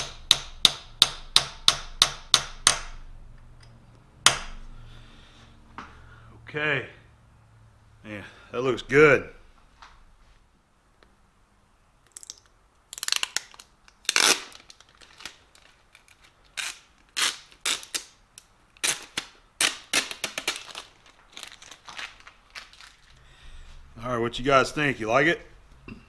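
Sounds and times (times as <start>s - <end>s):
plastic film crackling: 12.2s - 23.3s.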